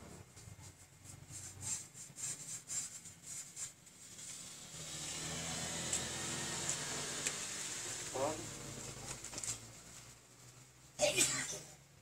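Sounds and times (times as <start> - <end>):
hand rubbing paint on canvas: 0.1 - 4.4.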